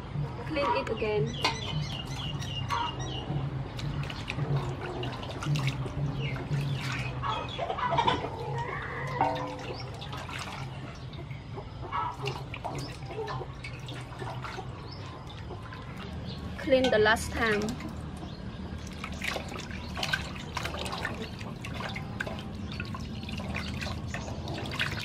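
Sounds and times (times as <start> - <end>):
water splashing and sloshing: 0.0 - 25.0
small knocks on metal basin: 9.1 - 10.2, 16.6 - 17.9.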